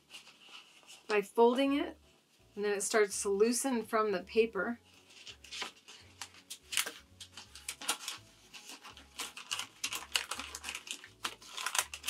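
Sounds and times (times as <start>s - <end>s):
paper liner crackling and rustling: 4.9s - 12.0s.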